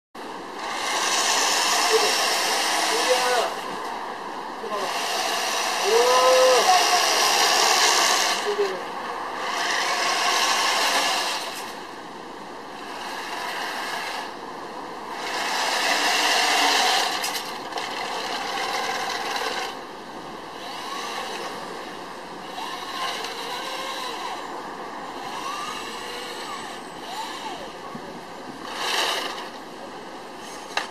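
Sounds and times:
toy tank motor whirring: 0.7 - 3.6, 15.2 - 19.8, 22.5 - 24.4, 25.2 - 27.8, 28.6 - 29.6.

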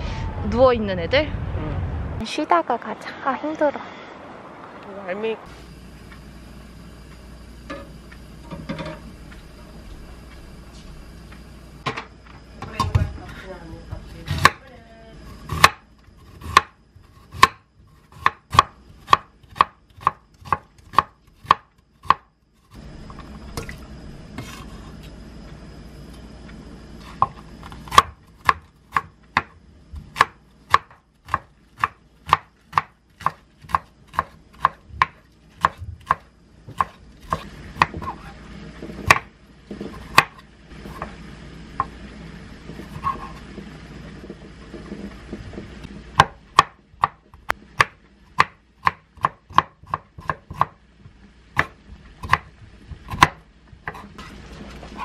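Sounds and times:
knife chopping on wooden board: 15.4 - 15.8, 16.4 - 22.3, 27.1 - 38.3, 39.0 - 40.4, 46.2 - 47.2, 47.8 - 50.8, 51.6 - 54.2.

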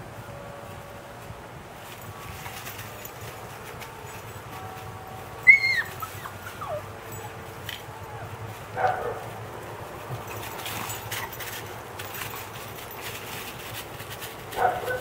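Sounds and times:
dog whining: 5.4 - 7.4
dog yelping: 5.4 - 7.4, 10.8 - 11.6.

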